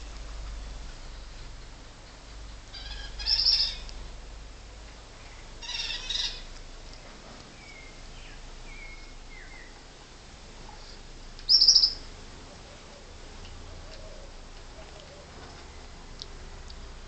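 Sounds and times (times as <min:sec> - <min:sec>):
high chirping calls: 0:02.7 - 0:03.9, 0:05.2 - 0:06.5, 0:11.5 - 0:12.1.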